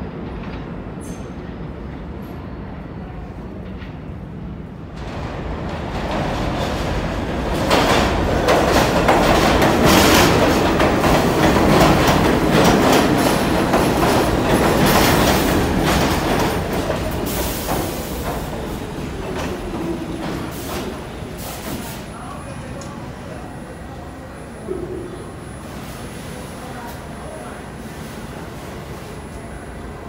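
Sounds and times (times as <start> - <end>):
subway train rumbling past: 0.0 - 30.0.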